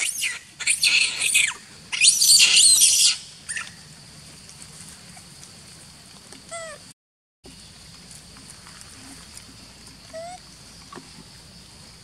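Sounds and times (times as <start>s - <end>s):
monkey screaming squeals: 0.0s - 3.8s, 6.5s - 6.8s.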